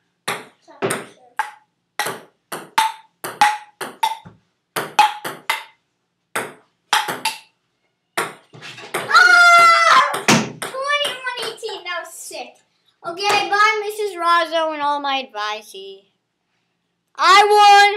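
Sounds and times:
child's voice: 0:00.6 - 0:01.4, 0:09.9 - 0:16.2, 0:17.2 - 0:17.9.

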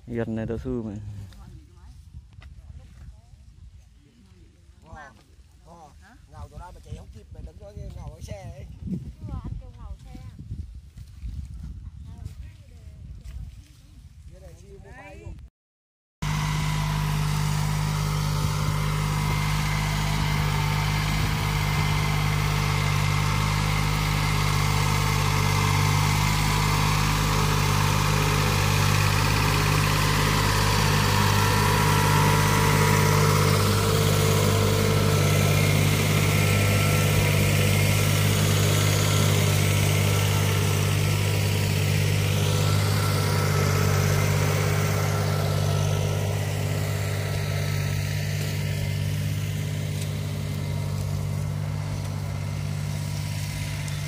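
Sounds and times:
tractor diesel engine running: 0:16.2 - 0:54.0.

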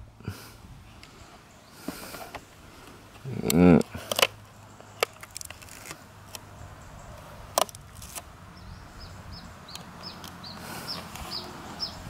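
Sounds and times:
plastic clicks and crackles: 0:03.1 - 0:06.4, 0:07.5 - 0:08.3
small bird chirping: 0:06.4 - 0:12.0.

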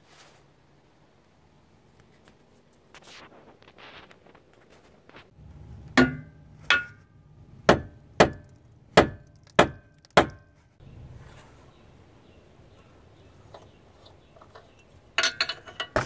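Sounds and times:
hand tool knocking on metal: 0:06.0 - 0:07.0.

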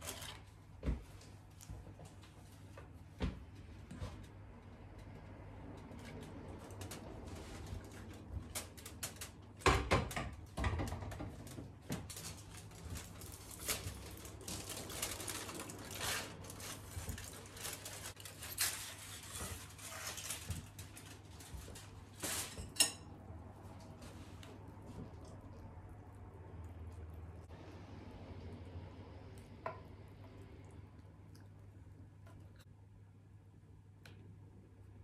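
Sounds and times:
aluminium foil crinkling: 0:00.0 - 0:00.5, 0:11.3 - 0:22.7.

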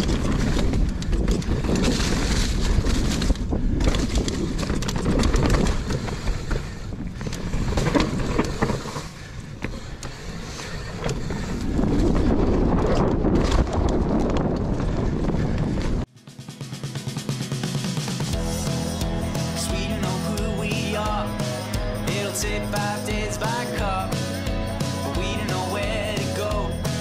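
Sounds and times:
wind on microphone: 0:00.0 - 0:09.0, 0:10.4 - 0:16.1
bike rattling and clicking: 0:00.0 - 0:16.1
bike tyres rolling over dirt: 0:00.0 - 0:16.1.

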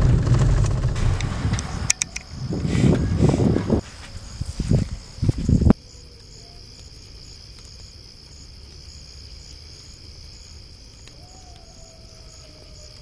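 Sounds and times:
low buffeting noise: 0:00.0 - 0:05.8
crickets chirping: 0:00.0 - 0:13.0.

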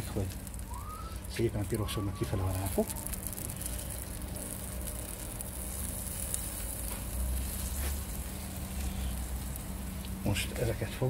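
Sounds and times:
seafood sizzling on a grill: 0:00.0 - 0:11.0.

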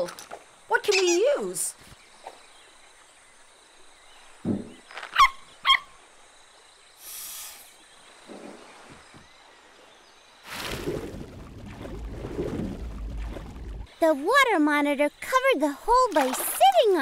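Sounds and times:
brief hiss: 0:07.0 - 0:07.8.

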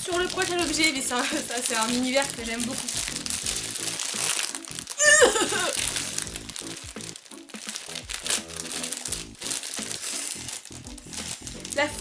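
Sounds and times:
background music: 0:00.0 - 0:12.0
plastic bag crinkling: 0:00.0 - 0:12.0
woman's strained cry: 0:05.0 - 0:05.8.

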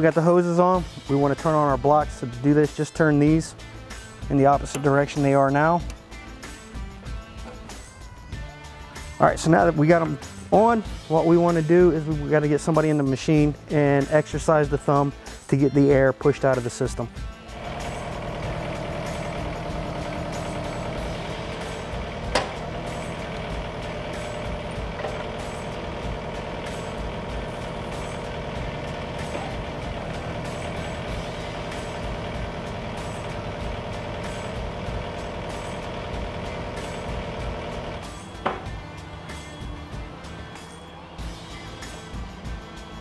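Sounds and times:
diesel engine running: 0:17.4 - 0:43.0
hydraulic whine: 0:17.5 - 0:43.0.

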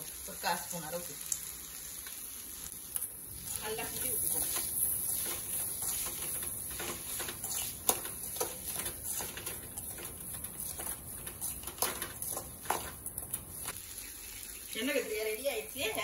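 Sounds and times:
spatula scraping metal pan: 0:03.5 - 0:13.4.

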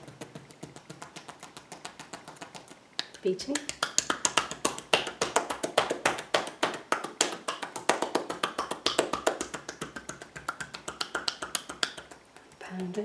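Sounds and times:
hands slapping bare back: 0:00.0 - 0:13.0.

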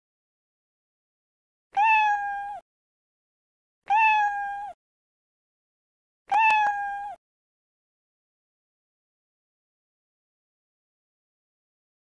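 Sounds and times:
cat meowing: 0:01.8 - 0:02.6, 0:03.9 - 0:04.8, 0:06.3 - 0:07.2.

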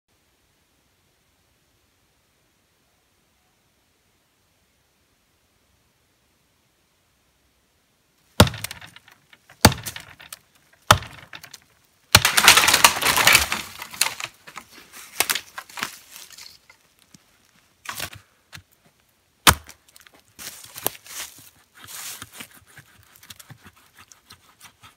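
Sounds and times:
hatchet chopping wood: 0:08.4 - 0:11.6, 0:12.2 - 0:14.2, 0:19.4 - 0:19.8
tree trunk cracking and splintering: 0:08.4 - 0:16.4, 0:19.4 - 0:20.1.

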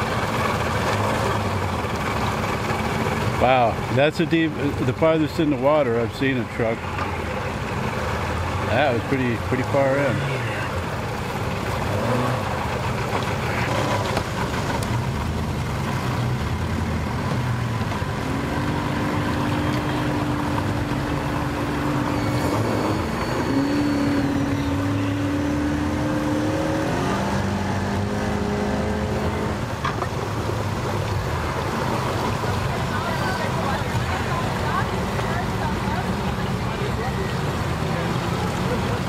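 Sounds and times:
outboard motor running: 0:00.0 - 0:39.0.

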